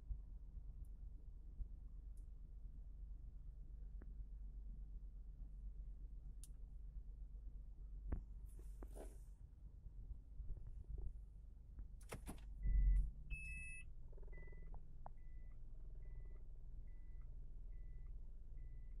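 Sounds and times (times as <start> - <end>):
low steady hum: 0.0 - 19.0
short two-tone beep: 12.6 - 16.3
reverse warning beeper: 12.6 - 19.0.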